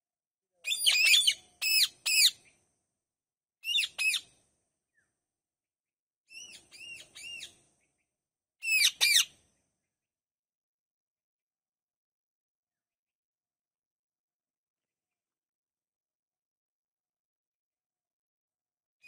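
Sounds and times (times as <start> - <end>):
parakeets screeching: 0.7 - 2.3, 3.7 - 4.2, 8.6 - 9.3.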